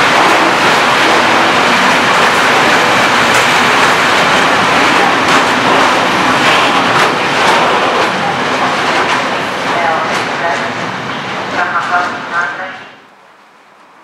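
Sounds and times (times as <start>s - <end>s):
wheels clacking over rail joints: 0.0s - 10.7s
train wheels rumbling on rail: 0.0s - 14.0s.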